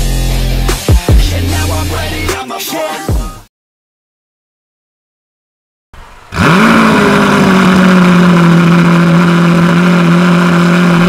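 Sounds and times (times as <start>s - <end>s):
car engine starting and idling: 6.0s - 11.0s.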